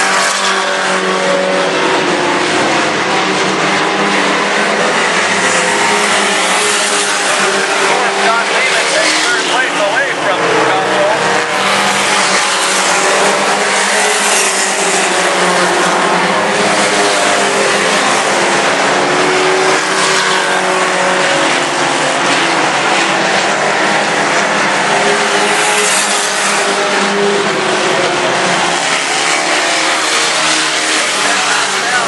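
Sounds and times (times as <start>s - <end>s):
race truck engines revving: 0.0s - 32.0s.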